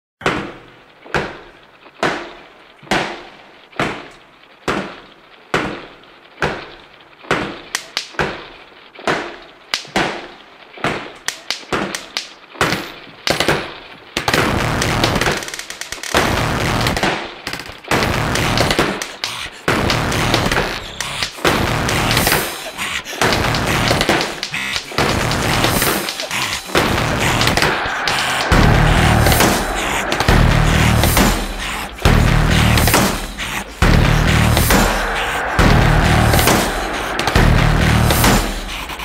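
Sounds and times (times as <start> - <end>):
sharp echoing bangs: 24.2 - 39.0
dense continuous loud noise: 24.5 - 39.0.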